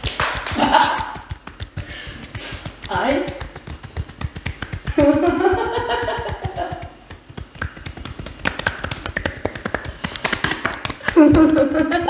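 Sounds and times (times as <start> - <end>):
hands slapping skin: 0.0 - 12.0.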